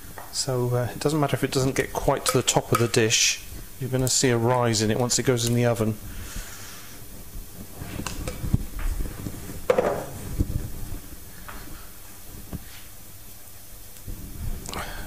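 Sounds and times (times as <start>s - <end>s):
kitchen knocks: 9.7s - 10.2s.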